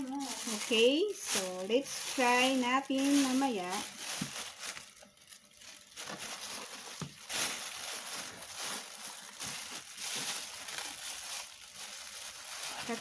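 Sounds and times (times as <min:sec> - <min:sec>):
plastic bags crinkling: 0:00.0 - 0:13.0.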